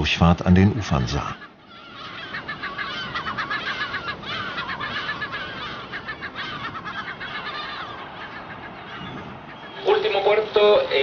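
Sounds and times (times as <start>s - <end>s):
flock of birds calling: 0.0s - 11.0s.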